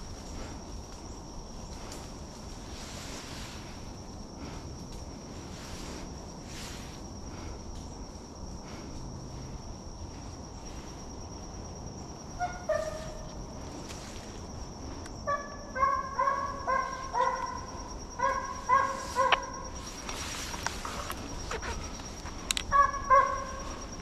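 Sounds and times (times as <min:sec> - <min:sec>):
distant hounds baying: 0:12.2 - 0:13.9, 0:15.2 - 0:24.0.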